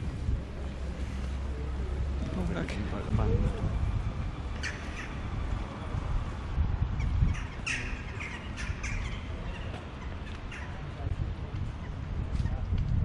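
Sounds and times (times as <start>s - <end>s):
steady low rumble: 0.0s - 13.0s
harsh bird calls: 4.5s - 5.4s, 7.0s - 11.0s.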